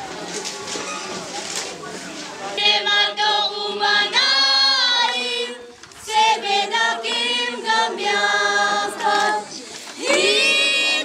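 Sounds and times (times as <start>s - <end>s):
young female voices singing: 2.6s - 11.0s.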